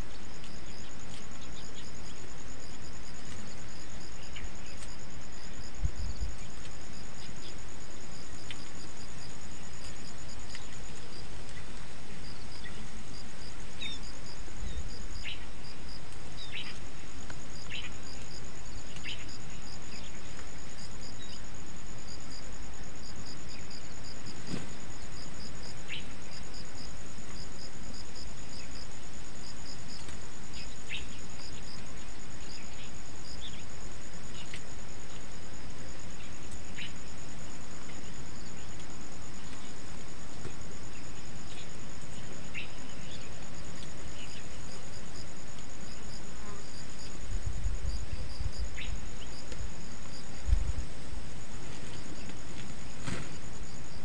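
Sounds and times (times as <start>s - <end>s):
background hiss: 0.0s - 54.0s
insects trilling: 0.0s - 54.0s.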